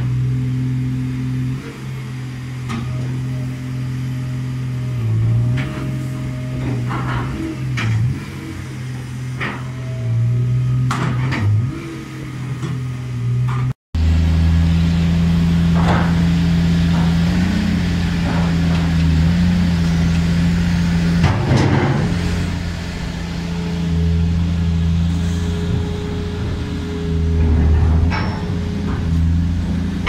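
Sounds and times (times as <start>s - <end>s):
heavy diesel machinery droning: 0.0s - 30.0s
scrap metal clanks: 25.0s - 30.0s.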